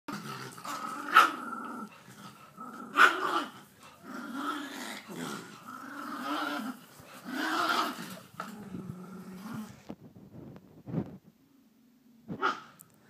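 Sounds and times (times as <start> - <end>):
dogs growling: 0.1 - 9.9
dog barking: 12.4 - 12.7.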